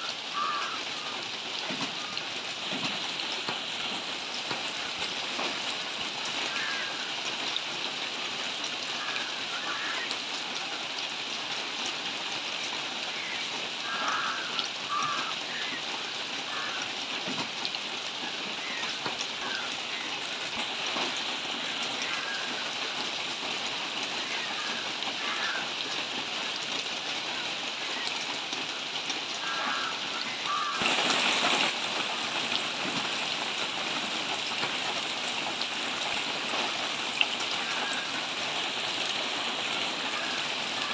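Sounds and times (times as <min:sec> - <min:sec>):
steady rainfall: 0:00.0 - 0:40.9.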